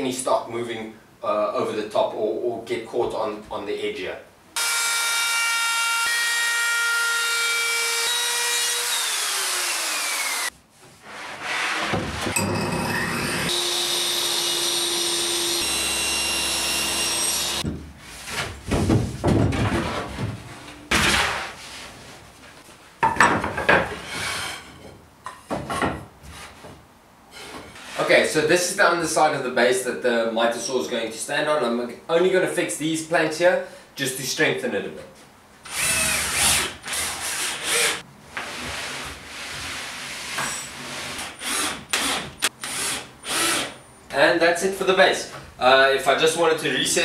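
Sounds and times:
table saw cutting board: 0:04.6 - 0:10.5, 0:11.1 - 0:17.7
router whining: 0:07.2 - 0:10.5, 0:12.3 - 0:17.6, 0:35.7 - 0:36.6, 0:41.4 - 0:43.7
wooden slats knocking and scraping: 0:17.6 - 0:21.4, 0:23.0 - 0:26.8.

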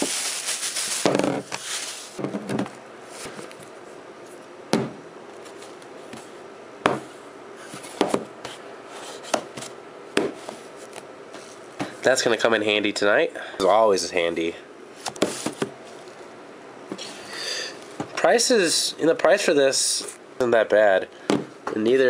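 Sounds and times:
plastic bag rustling: 0:00.0 - 0:02.2.

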